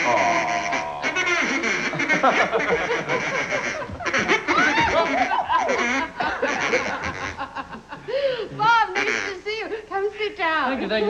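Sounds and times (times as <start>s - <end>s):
duck call quacks: 0.0s - 7.5s, 8.9s - 9.4s
people laughing: 0.0s - 9.2s.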